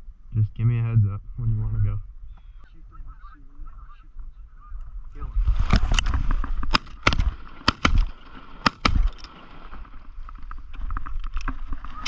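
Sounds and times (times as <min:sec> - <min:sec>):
shotgun blasts: 0:06.7 - 0:09.2.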